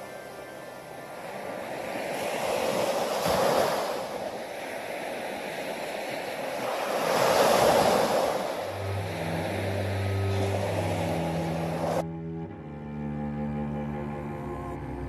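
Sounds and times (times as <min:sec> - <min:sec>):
waves washing up a beach: 0:00.0 - 0:12.0
low steady music notes: 0:08.7 - 0:15.0.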